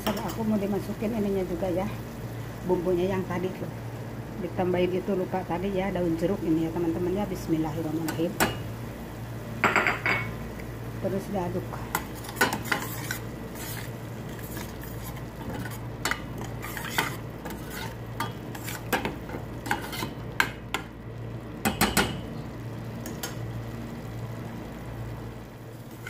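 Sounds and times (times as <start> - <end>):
ladle scraping metal pot: 12.0 - 20.2.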